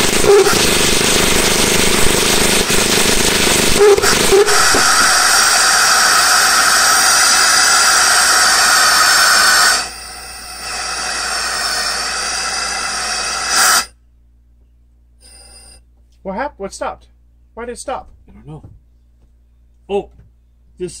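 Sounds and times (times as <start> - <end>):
pulse jet engine screaming: 0.0 - 13.9.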